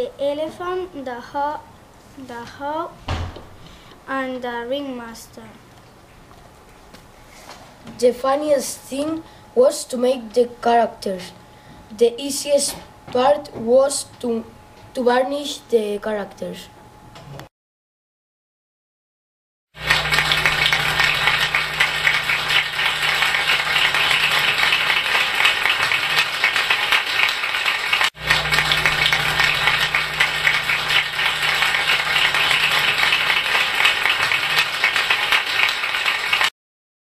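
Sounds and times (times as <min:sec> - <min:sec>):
crowd applause: 0:19.8 - 0:36.5.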